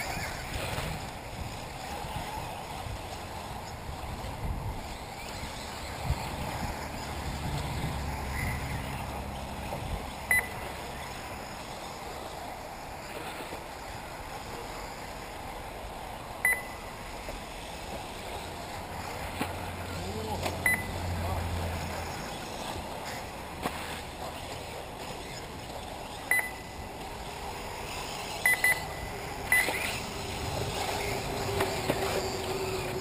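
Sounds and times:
wind rumble on microphone: 0.0 - 10.3
short high electronic beeps: 10.3 - 10.6, 16.5 - 16.8, 20.7 - 20.9, 26.3 - 26.8, 28.4 - 29.8.

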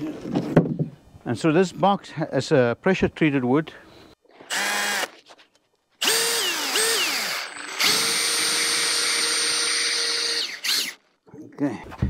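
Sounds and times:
cordless drill driving screw: 4.4 - 5.2, 6.0 - 11.0.

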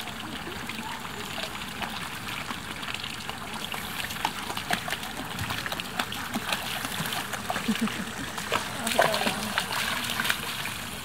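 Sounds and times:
puppy splashing through water: 0.0 - 11.0
water trickling into pool: 0.0 - 11.0.

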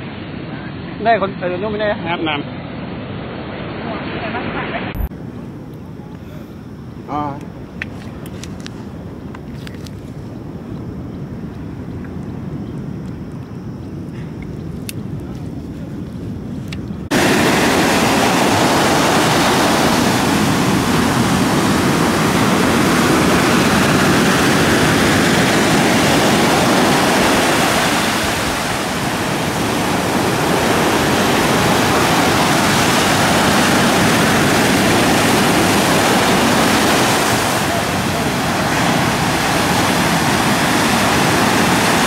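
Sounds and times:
sea surf breaking on beach: 17.1 - 42.0.

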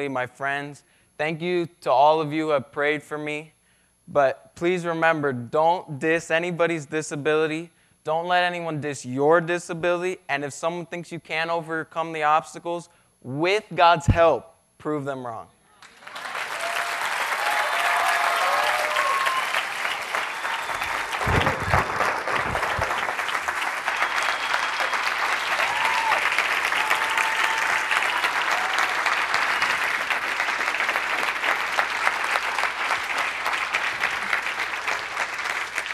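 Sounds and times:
people whooping: 15.8 - 33.2
audience applauding: 15.8 - 35.9
low thumps: 21.2 - 23.1.

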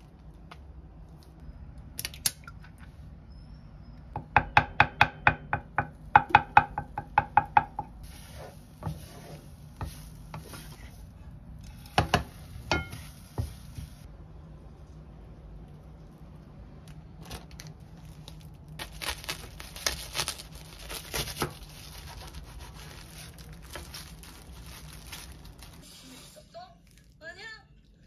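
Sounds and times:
spatula stirring in a pan: 8.0 - 14.1.

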